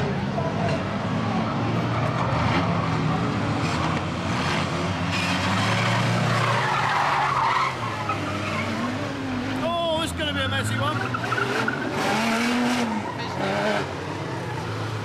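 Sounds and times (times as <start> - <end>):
tyres skidding: 0.0 - 15.0.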